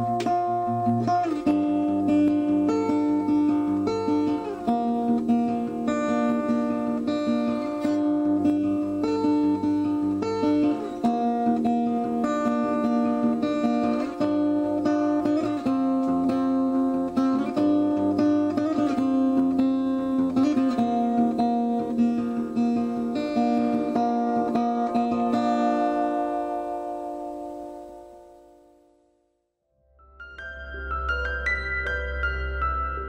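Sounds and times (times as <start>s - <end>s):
strummed acoustic guitar: 0.0s - 28.6s.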